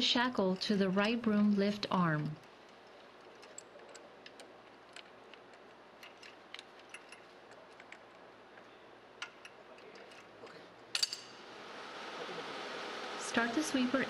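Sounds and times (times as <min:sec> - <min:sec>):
metallic clicks and clinks: 0:02.3 - 0:11.4.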